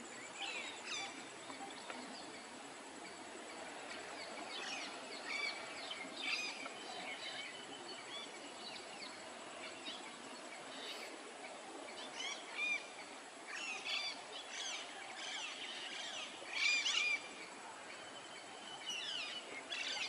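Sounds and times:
faint high-pitched whine: 0.0 - 20.0
steady outdoor hiss: 0.0 - 20.0.

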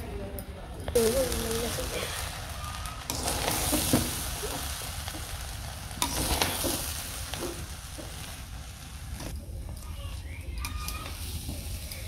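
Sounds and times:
lentils sizzling in pot: 0.8 - 12.0.

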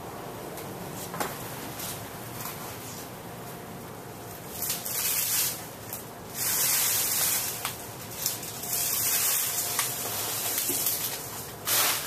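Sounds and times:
ceiling fan air hiss: 0.0 - 12.0
faint steady hum: 0.0 - 12.0.

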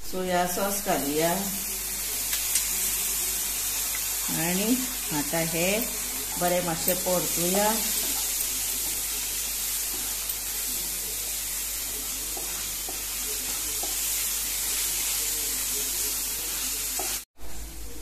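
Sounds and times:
vegetables sizzling in oil: 0.0 - 17.7
wooden spatula scraping and tapping: 7.8 - 9.1, 9.8 - 10.5, 12.1 - 14.2, 16.9 - 17.2.

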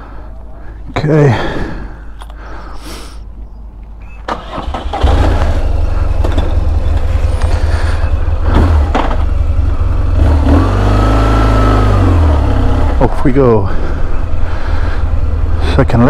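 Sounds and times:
motorcycle engine starting and idling: 4.0 - 16.0.

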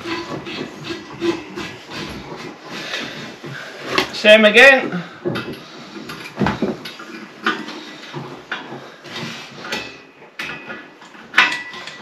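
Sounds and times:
spanner clinking on metal nut: 10.4 - 12.0.

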